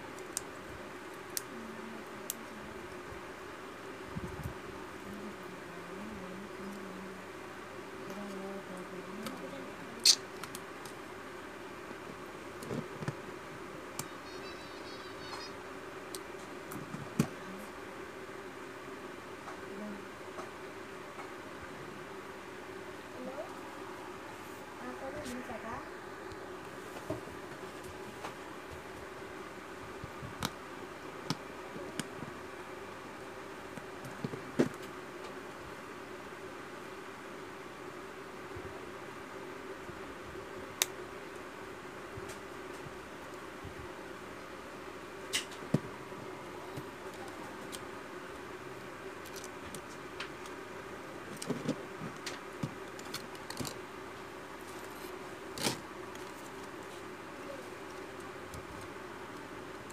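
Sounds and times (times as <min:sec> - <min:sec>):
steady low hiss: 0:00.0 - 0:59.9
steady low hum: 0:00.0 - 0:59.9.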